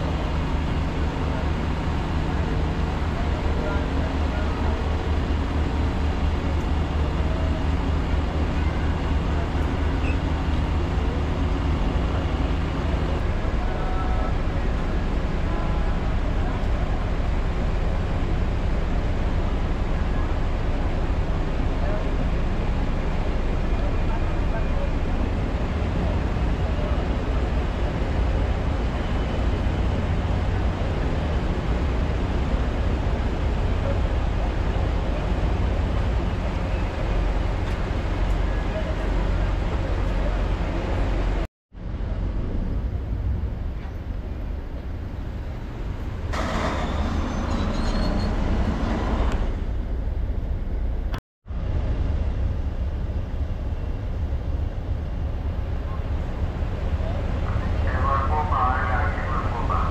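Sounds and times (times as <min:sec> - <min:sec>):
ferry diesel engines humming: 0:00.0 - 0:59.9.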